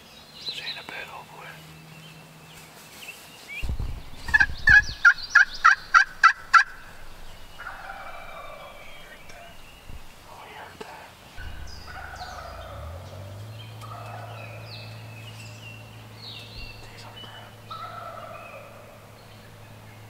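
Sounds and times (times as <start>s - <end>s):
birds calling: 0.0s - 20.0s
low steady hum rising in pitch: 3.6s - 10.7s, 11.3s - 20.0s.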